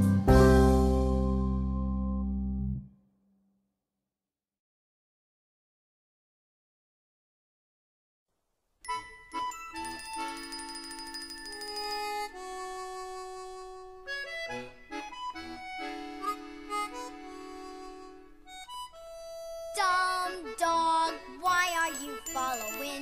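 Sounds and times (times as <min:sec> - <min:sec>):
background music with held notes: 0:00.0 - 0:02.8, 0:08.8 - 0:23.0.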